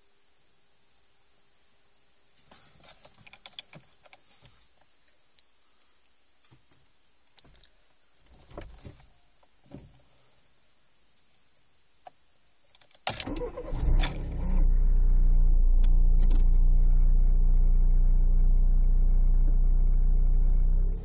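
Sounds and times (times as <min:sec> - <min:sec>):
faint clicks and rattles: 0:02.5 - 0:09.9.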